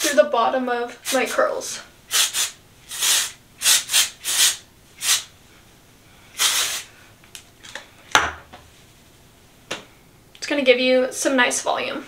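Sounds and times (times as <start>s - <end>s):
hair spray hissing bursts: 1.0s - 1.4s, 2.1s - 5.3s, 6.4s - 6.9s.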